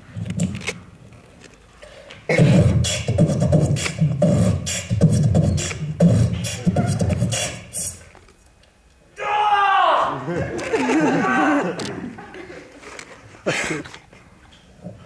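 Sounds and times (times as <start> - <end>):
man beatboxing into a microphone: 2.3 - 8.1.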